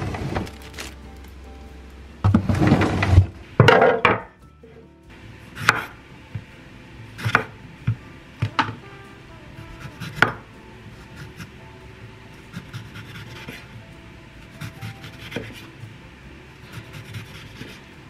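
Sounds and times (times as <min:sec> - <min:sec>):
knife scraping lemon rind: 0:16.8 - 0:17.9.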